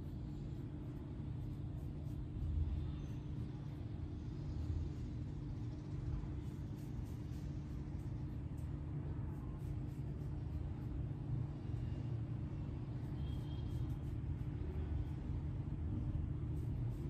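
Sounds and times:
faint steady hum: 0.0s - 17.0s
low background rumble: 0.0s - 17.0s.

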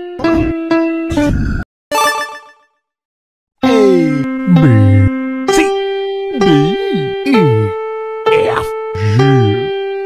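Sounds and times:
held pitched notes: 3.7s - 9.8s.

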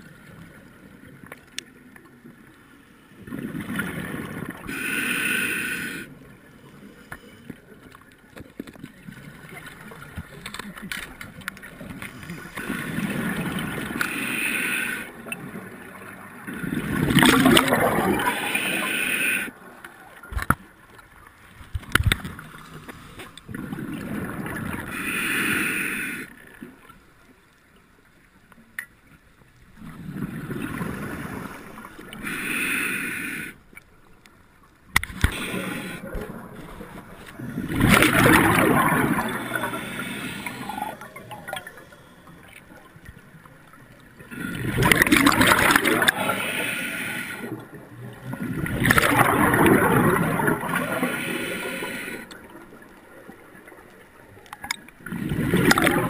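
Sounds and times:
scuba breathing underwater: 3.4s - 7.7s, 11.8s - 15.4s, 16.5s - 19.7s, 22.4s - 26.4s, 29.8s - 33.8s, 35.1s - 42.9s, 44.2s - 47.9s, 48.9s - 52.6s
rushing bubbles: 15.6s - 19.0s, 21.6s - 25.0s, 35.0s - 53.8s, 54.6s - 56.0s.

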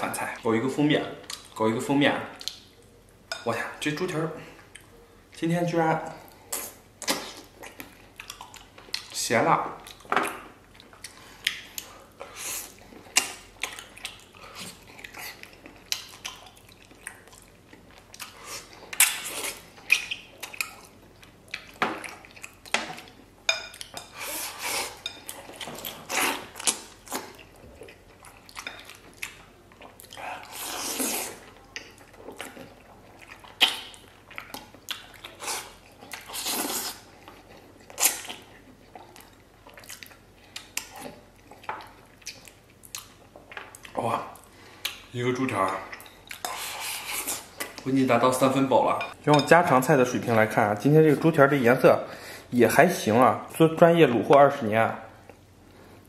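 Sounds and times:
chewing: 4.5s - 5.0s, 6.2s - 9.2s, 9.8s - 47.9s.

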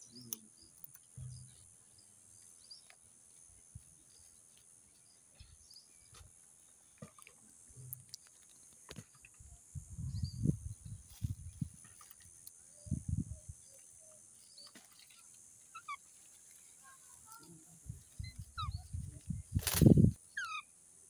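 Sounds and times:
faint chirps and clicks: 0.0s - 20.6s
insect drone: 0.0s - 21.0s.

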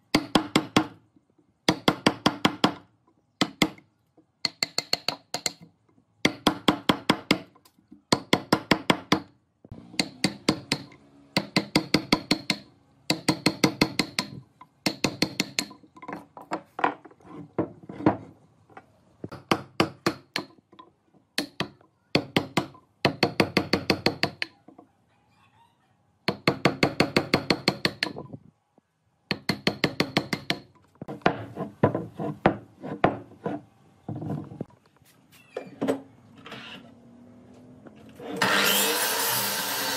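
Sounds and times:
mallet striking wood chisel: 0.1s - 1.0s, 1.6s - 16.5s, 19.3s - 24.6s, 26.3s - 28.3s, 29.3s - 33.3s.

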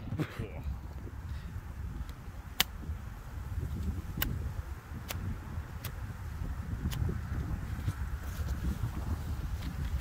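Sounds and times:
wind on microphone: 0.0s - 10.0s
sharp crack: 2.0s - 2.8s, 3.8s - 4.4s.

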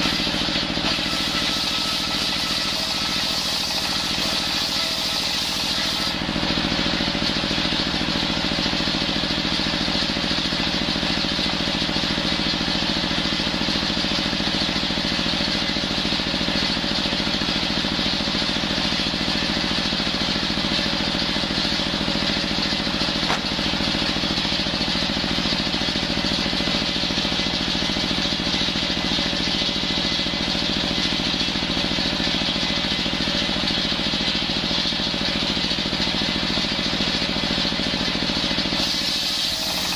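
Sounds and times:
circular saw cutting wood: 0.0s - 7.2s, 38.6s - 39.9s.

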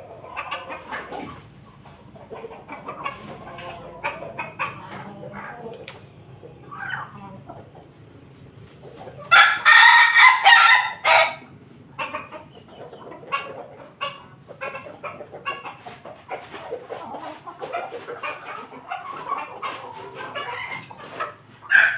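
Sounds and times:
chickens clucking: 0.0s - 21.9s
rooster crowing: 9.3s - 11.5s, 21.7s - 21.9s.

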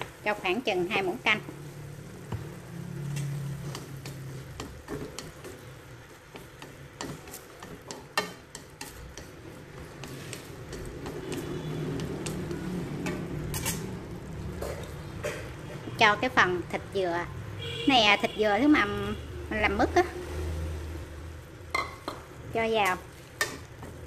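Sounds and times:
meat sizzling in a pan: 0.0s - 17.0s, 19.5s - 24.0s
utensil scraping and tapping pan: 3.1s - 5.7s, 6.3s - 13.9s, 23.4s - 24.0s.

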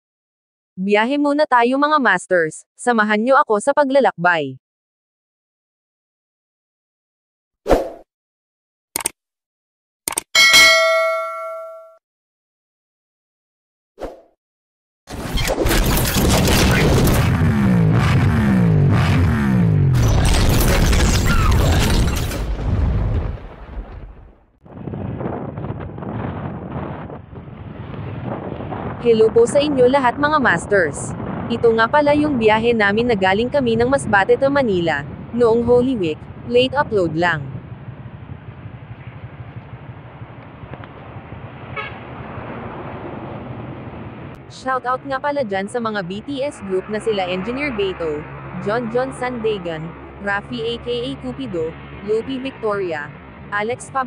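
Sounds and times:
deep booms: 16.2s - 29.0s
road traffic rumble: 26.7s - 54.0s
motorcycle engines idling: 37.7s - 41.3s
vehicle horn toot: 41.8s - 42.0s.

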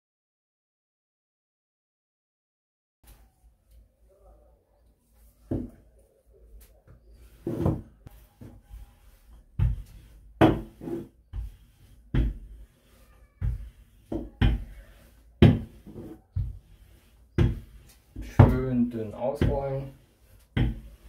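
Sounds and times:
rolling pin knocking on worktop: 15.4s - 16.6s.

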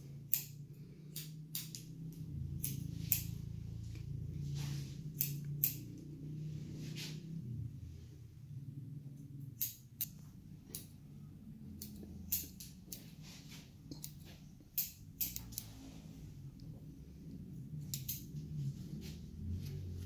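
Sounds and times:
low steady hum: 0.0s - 20.0s
scissors snipping hair: 0.2s - 3.5s, 5.0s - 6.1s, 9.5s - 11.0s, 11.7s - 13.1s, 13.9s - 15.8s, 17.8s - 18.4s.

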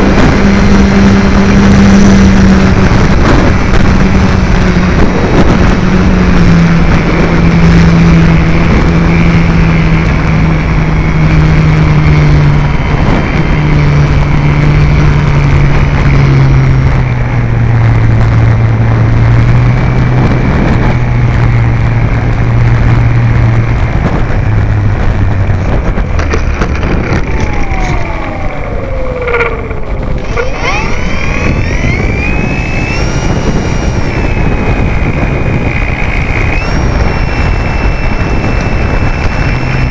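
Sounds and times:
electric motor and propeller hum: 0.0s - 39.9s
wind rushing over microphone: 0.0s - 39.9s
short gliding whines: 24.1s - 39.9s.

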